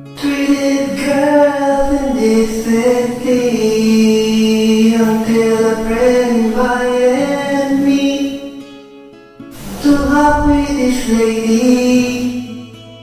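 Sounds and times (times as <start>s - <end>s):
strummed acoustic guitar: 0.0s - 13.0s
man singing held notes: 9.6s - 12.6s.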